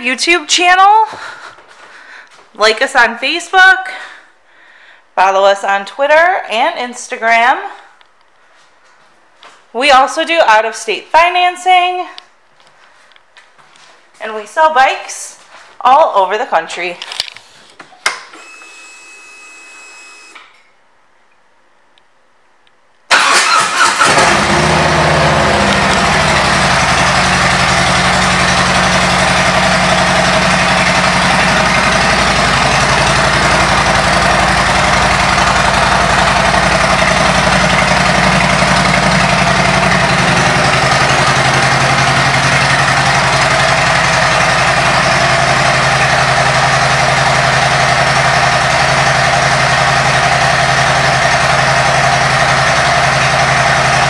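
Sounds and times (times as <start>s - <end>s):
motorcycle engine idling: 24.0s - 54.0s.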